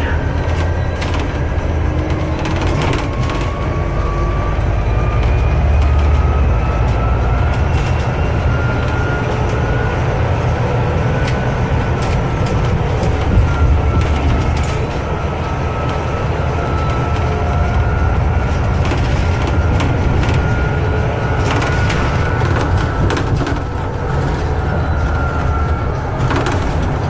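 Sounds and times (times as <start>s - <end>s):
bus engine and road rumble: 0.0s - 27.0s
drivetrain whine: 0.0s - 27.0s
cabin rattles: 16.9s - 27.0s.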